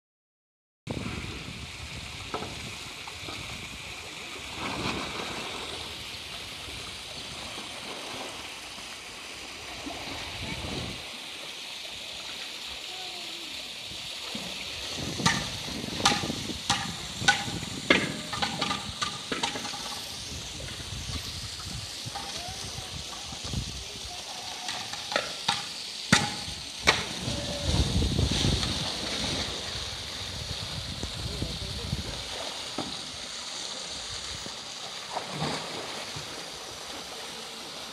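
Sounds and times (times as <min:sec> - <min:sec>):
water rushing and splashing: 0:00.9 - 0:37.9
sharp knocks: 0:15.2 - 0:20.0, 0:25.1 - 0:27.1.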